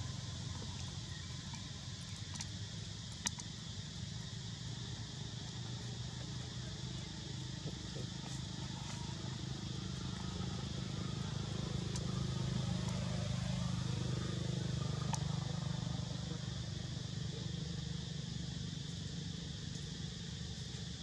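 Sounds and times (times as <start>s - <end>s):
low engine drone: 0.0s - 21.0s
faint clicks: 3.1s - 3.5s.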